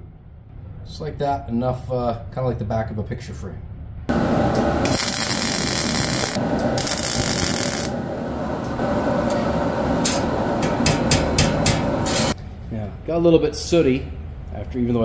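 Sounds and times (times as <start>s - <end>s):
arc welding: 4.1s - 12.4s.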